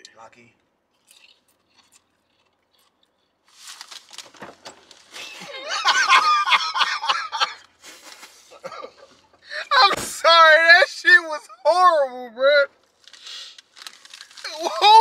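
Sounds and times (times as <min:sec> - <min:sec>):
potato chips crunching: 0:00.9 - 0:05.5, 0:12.9 - 0:15.0
man laughing loudly: 0:05.2 - 0:07.6, 0:08.5 - 0:09.9, 0:14.5 - 0:15.0.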